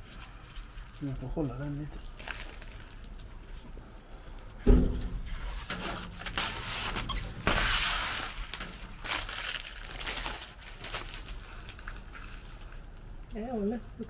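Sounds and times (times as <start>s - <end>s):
gloved hand rubbing plastic sheet: 5.4s - 12.7s.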